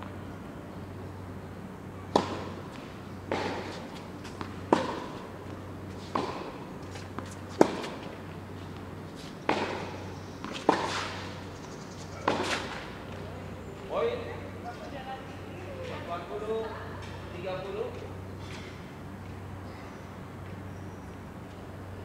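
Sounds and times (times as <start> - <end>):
steady low hum: 0.0 - 22.0
tennis ball struck by rackets: 2.1 - 5.3, 6.0 - 8.2, 9.4 - 11.4, 12.2 - 13.0.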